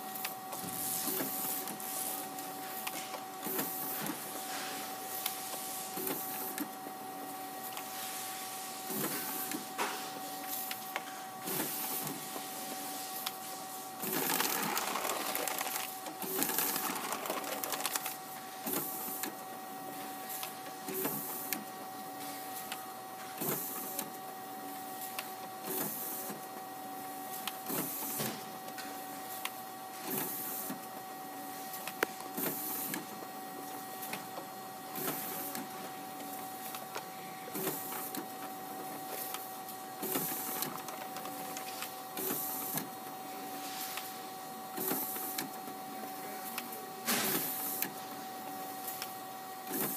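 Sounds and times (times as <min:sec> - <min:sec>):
paper swishes and roller rattles: 0:11.5 - 0:19.2.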